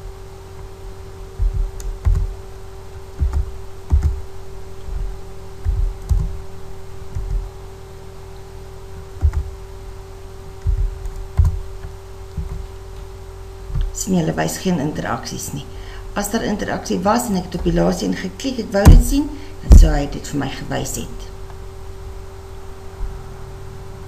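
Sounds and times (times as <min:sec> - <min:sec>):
steady low hum: 0:00.0 - 0:24.0
computer keyboard keystrokes: 0:03.2 - 0:04.2.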